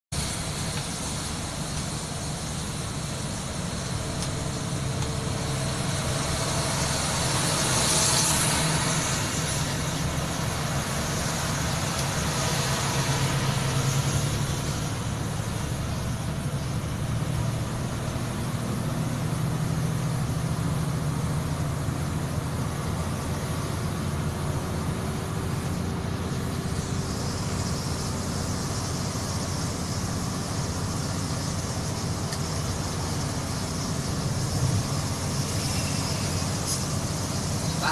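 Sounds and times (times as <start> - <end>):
vehicle engine drone: 0.1 - 37.9
tyre hiss on wet road: 0.2 - 19.6, 22.8 - 37.9.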